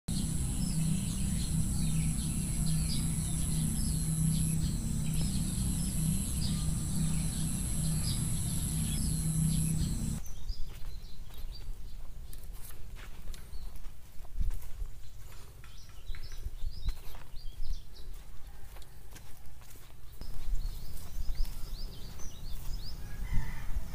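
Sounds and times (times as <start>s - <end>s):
low hum: 0.0s - 10.2s
steady high-pitched tone: 0.0s - 10.2s
small birds chirping: 0.1s - 12.0s
footsteps on dirt path: 12.4s - 23.0s.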